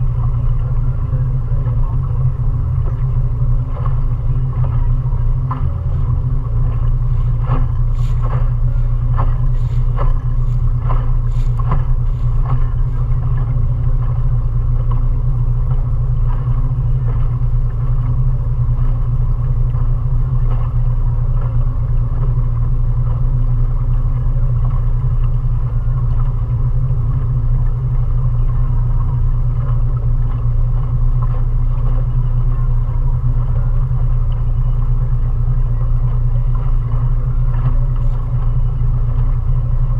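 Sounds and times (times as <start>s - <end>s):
outboard motor droning: 0.0s - 39.9s
short knocks: 5.4s - 14.2s.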